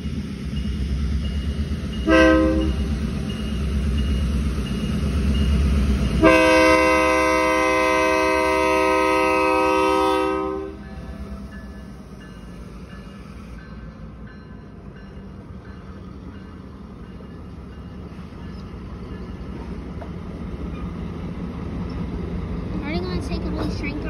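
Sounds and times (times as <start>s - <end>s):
locomotive air horn: 2.0s - 2.9s, 6.2s - 10.8s
diesel engine rumble: 8.6s - 24.0s.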